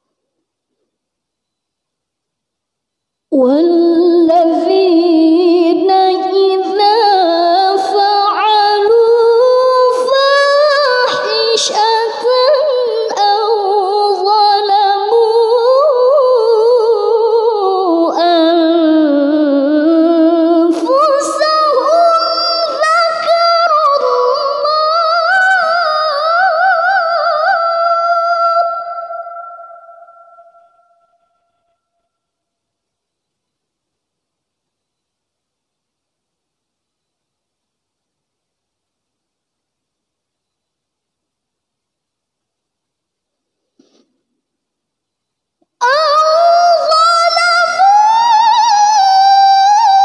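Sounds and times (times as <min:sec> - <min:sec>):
woman reciting melodically: 0:03.3 - 0:31.6, 0:45.6 - 0:50.0.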